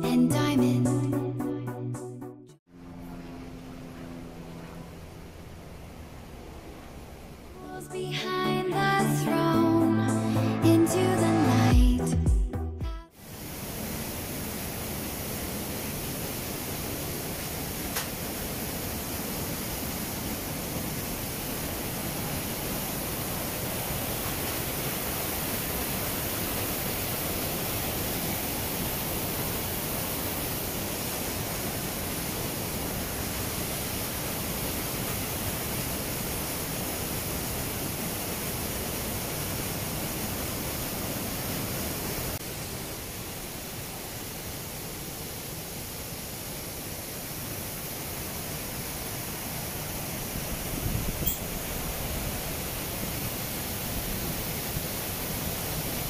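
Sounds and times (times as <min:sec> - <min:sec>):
waterfall rushing: 0:13.2 - 0:56.0.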